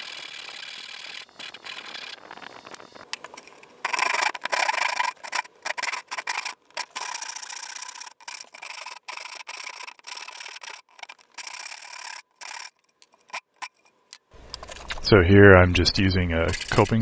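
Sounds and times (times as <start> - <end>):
hand saw cutting wood: 0.0 - 2.2, 3.8 - 13.8, 16.5 - 17.0.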